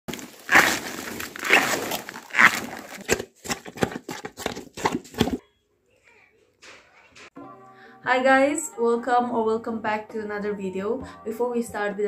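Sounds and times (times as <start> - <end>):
crisp crunching: 0.1 - 5.4.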